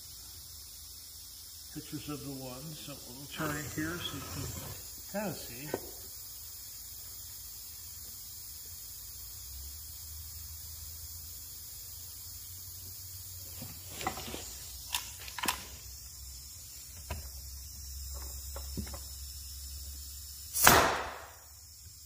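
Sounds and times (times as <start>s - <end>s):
workshop hum: 1.6s - 6.7s, 12.8s - 22.0s.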